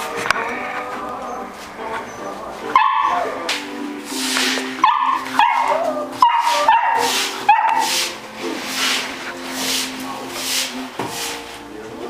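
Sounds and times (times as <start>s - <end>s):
puppies yipping: 1.9s - 3.5s, 4.2s - 9.2s.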